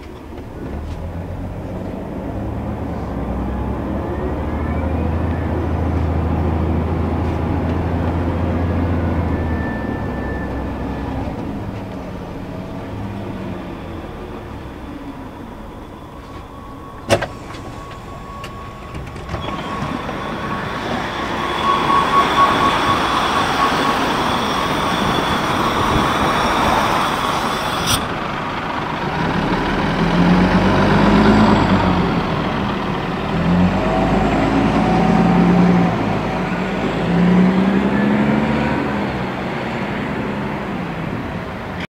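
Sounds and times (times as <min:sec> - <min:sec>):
bus diesel engine accelerating: 0:00.0 - 0:41.9
bus air hiss: 0:16.1 - 0:18.9, 0:19.5 - 0:28.5.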